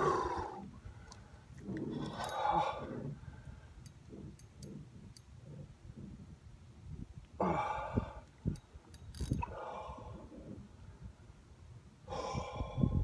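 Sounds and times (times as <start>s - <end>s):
fishing reel ratcheting: 8.5s - 9.4s.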